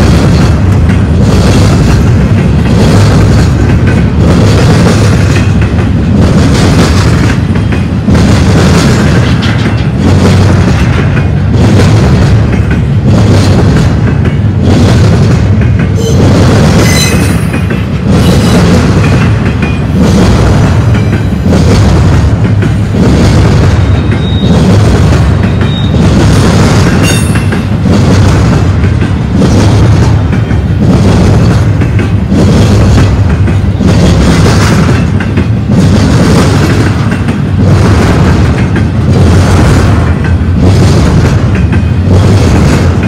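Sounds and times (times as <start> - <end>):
train wheels rumbling on rail: 0.0 - 43.0
wheels clacking over rail joints: 0.0 - 43.0
wheel squeal: 16.8 - 17.5.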